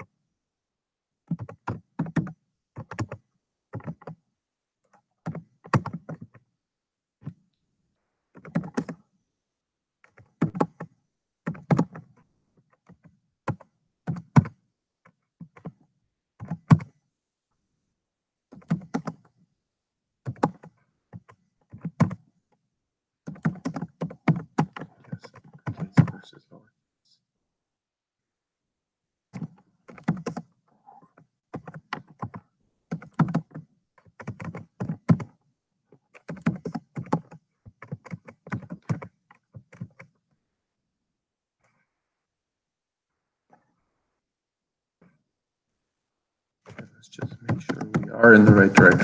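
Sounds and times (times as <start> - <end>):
computer keyboard typing: 1.3 - 4.2, 4.9 - 6.4, 8.4 - 9.0, 10.0 - 12.2, 12.8 - 15.8, 16.4 - 16.9, 18.5 - 19.3, 20.2 - 22.2, 23.3 - 26.2, 29.4 - 30.5, 31.5 - 35.4, 36.0 - 40.1, 46.7 - 49.0.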